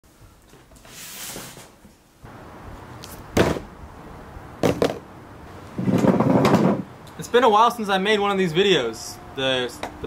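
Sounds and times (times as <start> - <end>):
heavy thud: 3.4 - 3.7.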